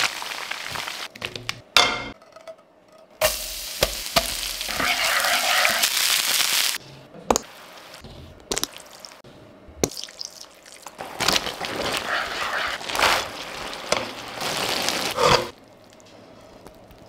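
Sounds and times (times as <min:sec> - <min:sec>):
stir-fry sizzling: 0:00.0 - 0:01.1, 0:03.2 - 0:06.8, 0:10.8 - 0:15.9
wooden spoon scraping pan: 0:04.7 - 0:05.8, 0:11.3 - 0:15.5.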